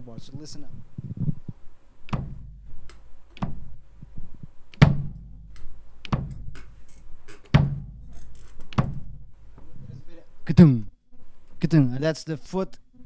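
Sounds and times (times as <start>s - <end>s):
bass drum hits: 2.1s - 2.7s, 4.8s - 6.7s, 7.6s - 8.2s, 8.8s - 9.4s
foot slapping pedal board: 2.1s - 9.3s.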